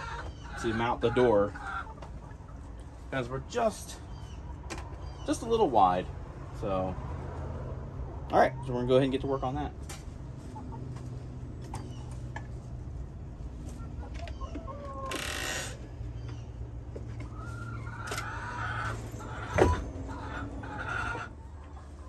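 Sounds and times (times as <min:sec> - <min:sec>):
chickens clucking and calling: 0:00.0 - 0:06.1, 0:10.1 - 0:22.0.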